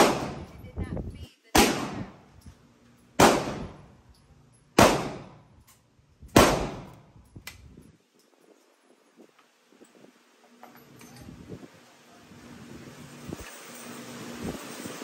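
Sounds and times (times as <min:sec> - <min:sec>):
gunshots with echo: 0:00.0 - 0:00.5, 0:01.6 - 0:02.2, 0:03.2 - 0:03.8, 0:04.8 - 0:05.4, 0:06.4 - 0:06.9.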